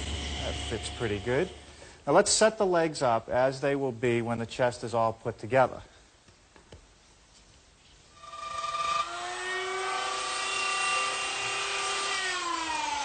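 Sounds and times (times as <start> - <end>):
electric router motor whine: 8.2 - 13.0.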